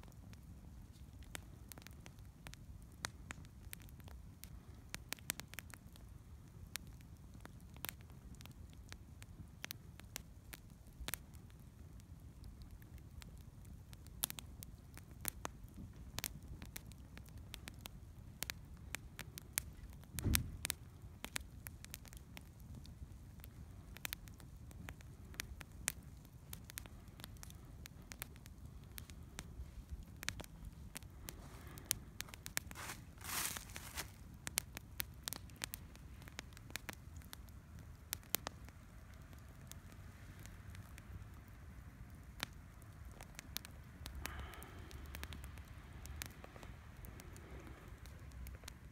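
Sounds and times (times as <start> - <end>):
campfire crackling and popping: 0.0 - 48.9.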